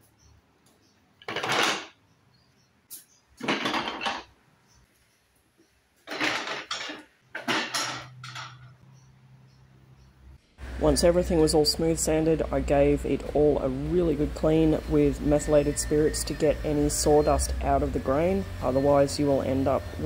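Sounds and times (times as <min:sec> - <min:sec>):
wooden rails clattering on table: 0:01.2 - 0:02.0, 0:03.4 - 0:04.3, 0:06.0 - 0:08.8.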